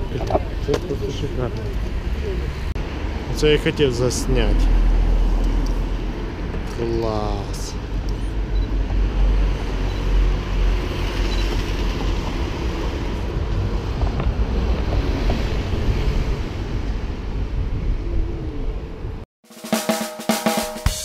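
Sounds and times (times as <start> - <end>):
wind buffeting microphone: 11.4 - 19.2.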